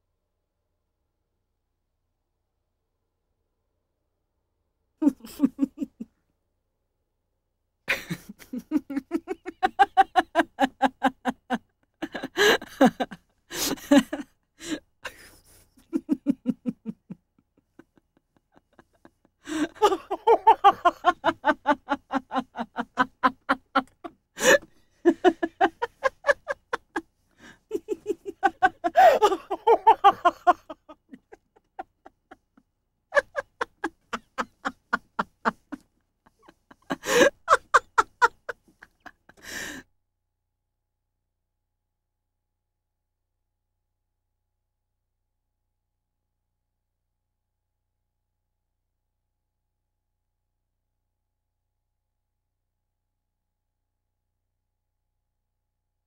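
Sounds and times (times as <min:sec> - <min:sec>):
person laughing hard: 0:05.0 - 0:06.1, 0:07.9 - 0:32.4, 0:33.2 - 0:39.8.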